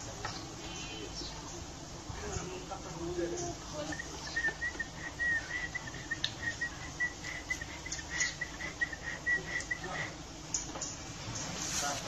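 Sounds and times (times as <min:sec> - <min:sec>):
bird chirping rapidly: 0:03.2 - 0:10.1.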